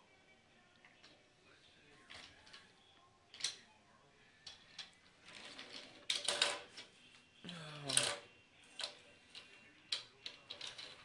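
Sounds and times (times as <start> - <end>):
toy train clicking on track: 7.9 - 11.0.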